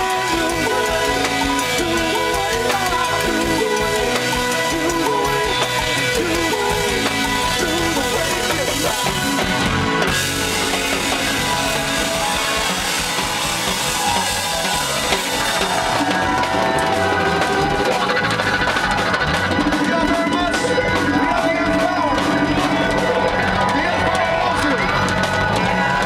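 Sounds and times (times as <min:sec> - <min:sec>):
drum kit: 0:00.0 - 0:26.0
electric guitar: 0:00.0 - 0:26.0
hand percussion: 0:00.0 - 0:26.0
keyboards: 0:00.0 - 0:26.0.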